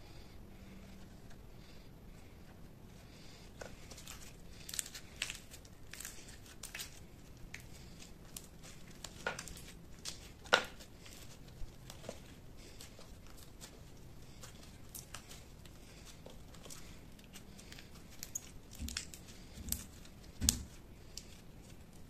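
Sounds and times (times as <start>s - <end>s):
slime popping and crackling: 4.0s - 11.2s, 16.0s - 21.3s.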